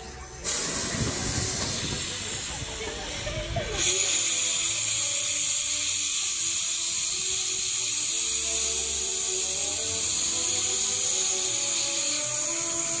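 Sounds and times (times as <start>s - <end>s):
faint music: 0.0s - 13.0s
steam hissing: 0.0s - 13.0s.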